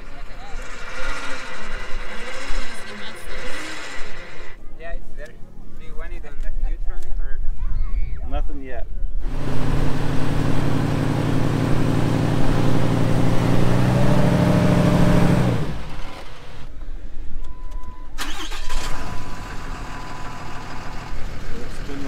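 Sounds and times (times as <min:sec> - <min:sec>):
engine straining under load: 0:00.0 - 0:04.6, 0:09.2 - 0:16.8, 0:17.4 - 0:22.0.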